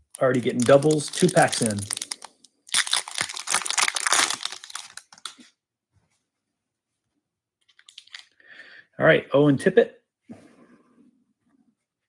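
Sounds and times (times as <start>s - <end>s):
foil wrapper tearing and crinkling: 0.2s - 5.4s.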